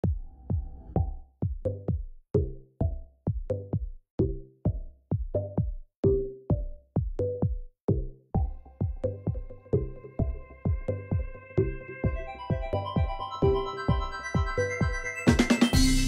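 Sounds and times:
electronic music with drum machine: 0:00.0 - 0:16.0.

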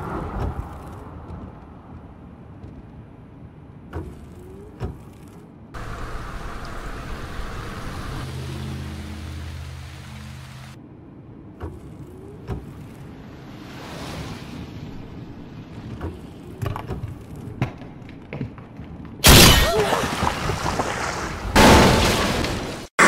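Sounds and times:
rain falling: 0:05.8 - 0:10.8.

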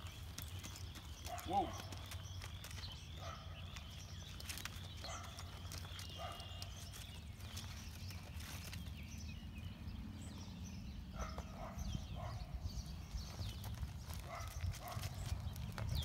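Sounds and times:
horse stepping on soft dirt: 0:00.0 - 0:09.3, 0:13.1 - 0:16.0.

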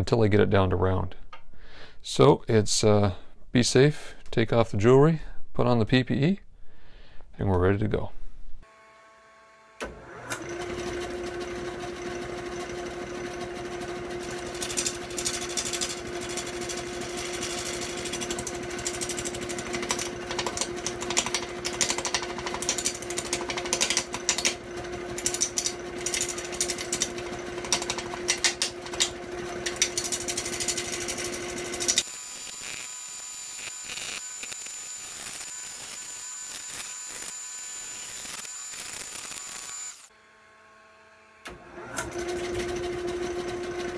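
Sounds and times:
lathe motor hum: 0:08.7 - 0:43.9.

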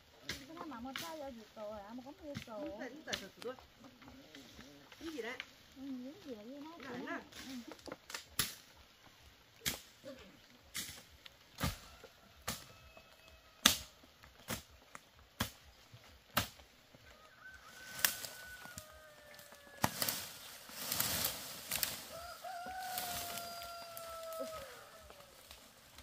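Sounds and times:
rustling: 0:00.1 - 0:26.0
rooster crowing: 0:11.6 - 0:14.1, 0:17.0 - 0:26.0.

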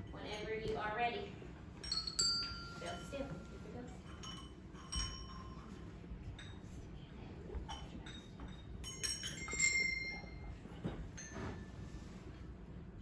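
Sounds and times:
bells ringing: 0:01.8 - 0:05.8, 0:08.8 - 0:10.5.

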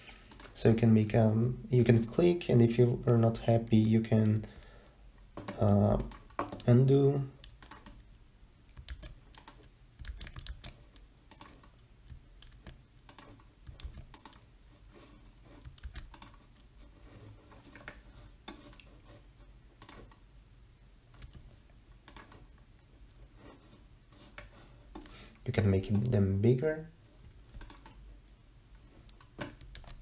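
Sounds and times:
computer mouse clicks: 0:00.2 - 0:00.6, 0:05.4 - 0:06.7, 0:07.4 - 0:14.5, 0:15.6 - 0:16.7, 0:17.7 - 0:18.9, 0:19.8 - 0:20.2, 0:21.1 - 0:22.5, 0:24.2 - 0:26.2, 0:27.2 - 0:28.0, 0:29.0 - 0:30.0
keyboard keys clicking: 0:07.4 - 0:08.0, 0:08.7 - 0:14.4, 0:15.6 - 0:16.4, 0:27.5 - 0:28.0, 0:29.0 - 0:30.0.

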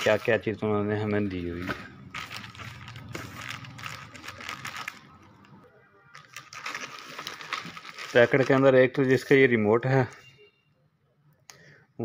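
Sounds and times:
plastic bag crinkling: 0:01.4 - 0:05.6, 0:06.2 - 0:09.3.

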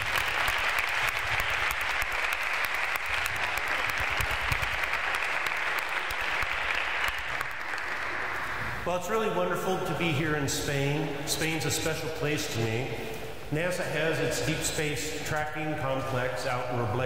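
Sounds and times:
audience applauding: 0:00.0 - 0:08.8.

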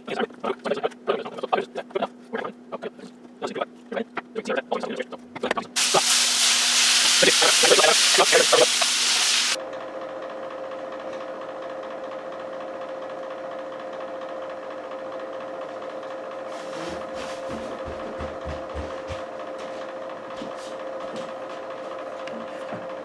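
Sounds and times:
turntable motor humming: 0:00.0 - 0:23.0.

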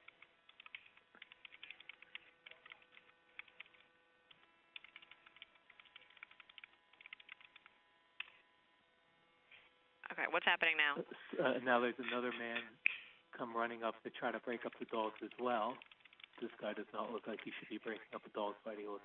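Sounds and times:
keyboard typing clicks: 0:00.0 - 0:03.9, 0:04.7 - 0:08.4, 0:14.8 - 0:16.5
faint steady hum: 0:00.0 - 0:19.0.

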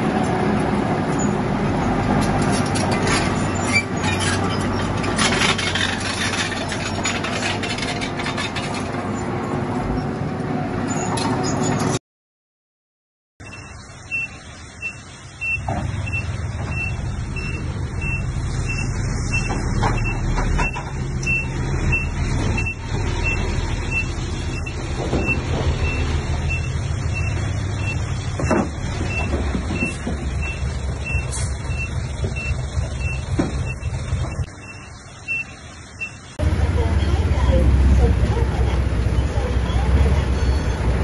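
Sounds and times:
reversing alarm beeping: 0:13.4 - 0:28.0, 0:29.1 - 0:36.3
diesel engine running: 0:13.4 - 0:41.0.

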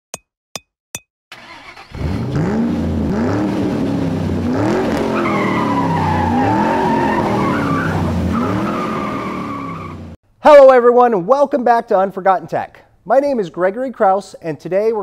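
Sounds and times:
car engine revving: 0:01.4 - 0:10.2.

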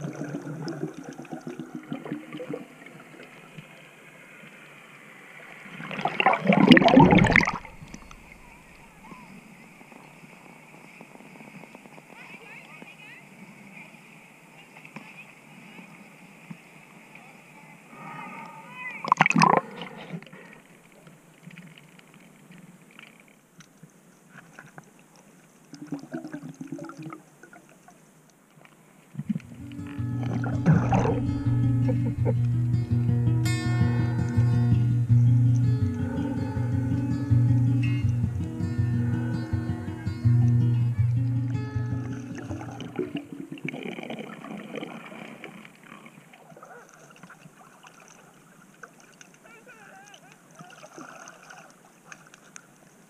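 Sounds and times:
soft underwater hiss: 0:00.0 - 0:53.0
muffled underwater clicking: 0:06.2 - 0:08.4, 0:29.2 - 0:32.7
crackling clicks: 0:06.5 - 0:08.4, 0:20.6 - 0:26.4, 0:27.0 - 0:31.2
hands scraping silt underwater: 0:29.2 - 0:32.6
guitar music: 0:29.4 - 0:43.5.

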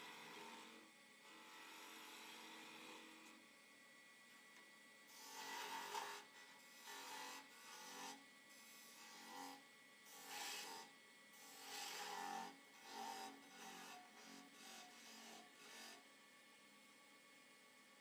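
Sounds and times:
lathe hum: 0:00.0 - 0:17.9
parting tool cutting wood: 0:05.1 - 0:08.2, 0:10.1 - 0:16.0.

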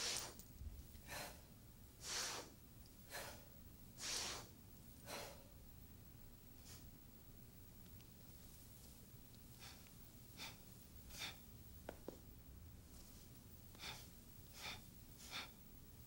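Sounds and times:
forceful breaths: 0:01.0 - 0:05.6, 0:09.6 - 0:11.5, 0:13.7 - 0:15.6.

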